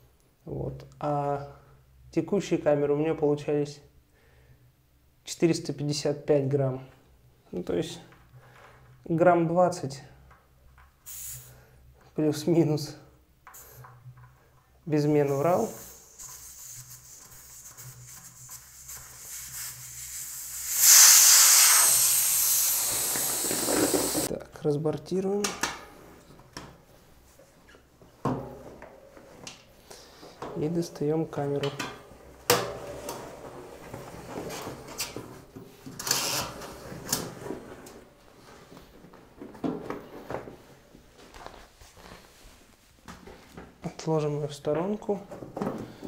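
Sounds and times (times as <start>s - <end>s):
air hissing from inner tube: 11.1s - 11.6s, 13.5s - 13.9s, 15.2s - 24.3s.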